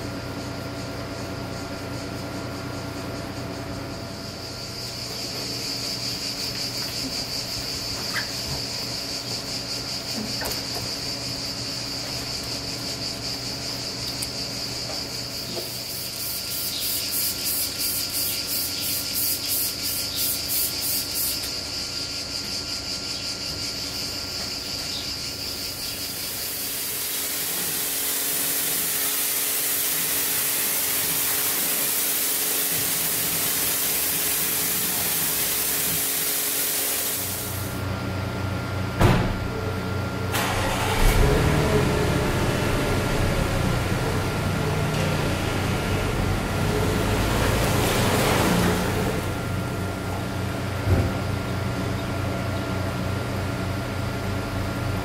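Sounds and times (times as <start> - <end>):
low machine hum: 0.0 - 55.0
pressure washer water jet hissing: 15.5 - 21.6, 25.5 - 37.8, 40.4 - 49.4.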